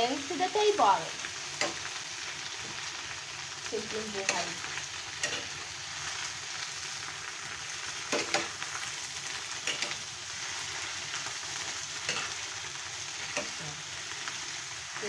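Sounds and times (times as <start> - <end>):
vegetables sizzling in frying pan: 0.0 - 15.0
spatula scraping pan: 12.0 - 14.3.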